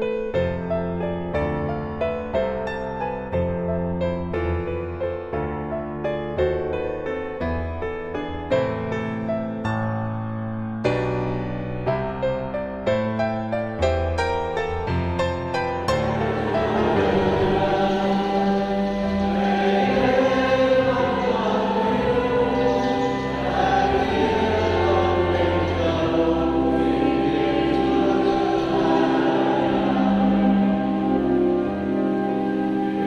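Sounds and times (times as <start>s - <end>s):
choir singing chant-like lines: 15.9s - 33.0s.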